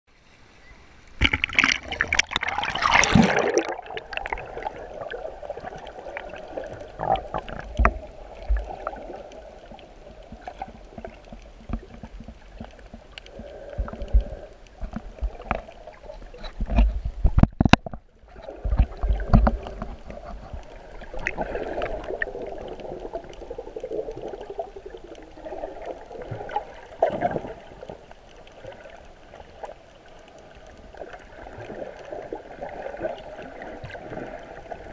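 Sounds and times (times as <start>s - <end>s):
muffled underwater wash: 0.1s - 34.9s
water sloshing and gurgling: 1.0s - 34.9s.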